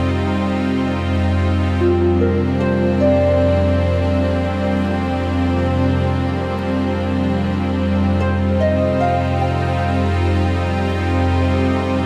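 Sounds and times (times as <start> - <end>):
background music with held notes: 0.0 - 12.0
low drone: 0.0 - 12.0.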